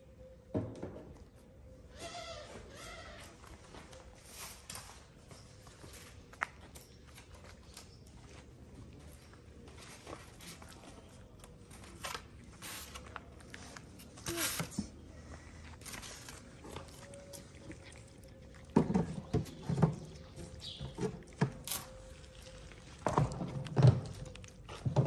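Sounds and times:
cats crunching dry kibble: 0:15.2 - 0:25.0.

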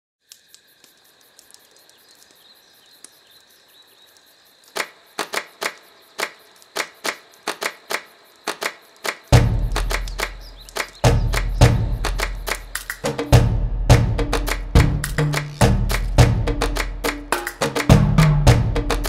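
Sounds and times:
soft ticks: 0:00.2 - 0:03.5
sharp loud clicks: 0:04.7 - 0:13.5
soundtrack music: 0:11.0 - 0:19.0.

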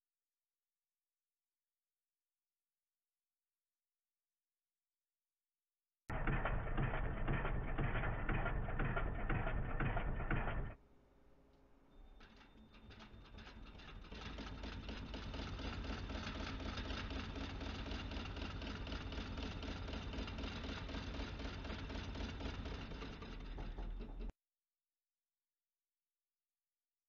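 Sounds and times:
sewing machine rattling: 0:12.0 - 0:24.3.

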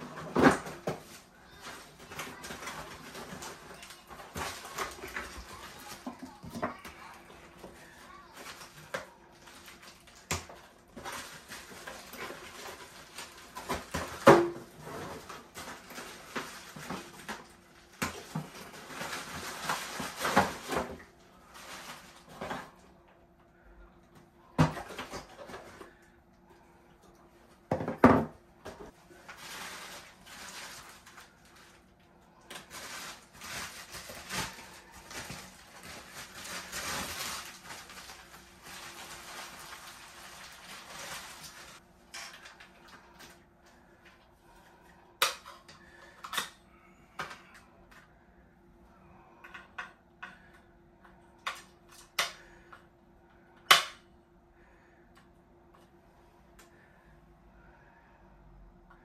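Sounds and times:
plastic bags and bubble wrap crinkling: 0:00.0 - 0:23.0, 0:27.5 - 0:44.6.

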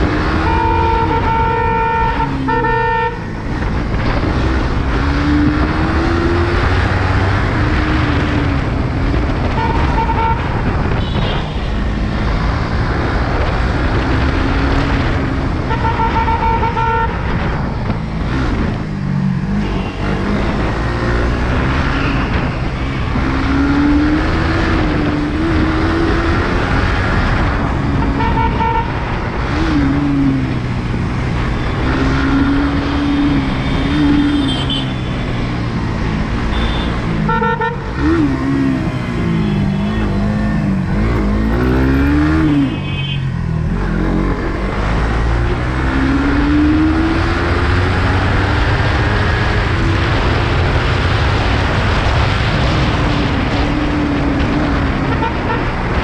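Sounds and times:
motorcycle engine revving: 0:00.0 - 0:16.6, 0:17.2 - 0:56.0
road and wind noise: 0:00.0 - 0:56.0
vehicle horn beeping: 0:00.4 - 0:03.2, 0:09.6 - 0:11.7, 0:15.7 - 0:17.2, 0:19.6 - 0:20.2, 0:28.0 - 0:28.9, 0:33.6 - 0:35.2, 0:36.5 - 0:37.9, 0:39.2 - 0:40.2, 0:42.5 - 0:43.4.

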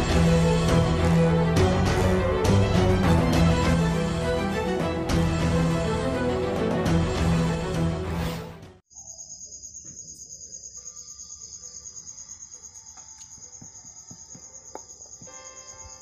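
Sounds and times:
cricket trilling: 0:08.9 - 0:16.0.

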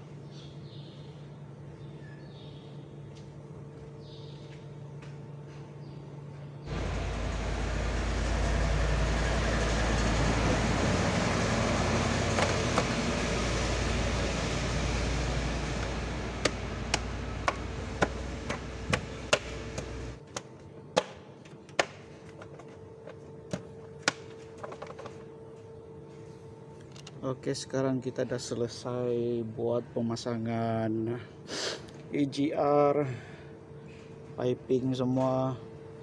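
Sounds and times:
rushing noise with deep rumble: 0:06.7 - 0:20.2.

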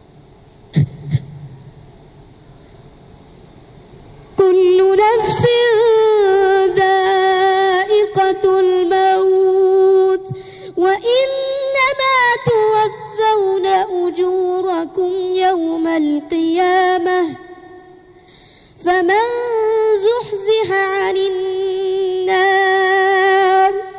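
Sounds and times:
child chanting recitation: 0:04.4 - 0:17.8, 0:18.8 - 0:23.9.

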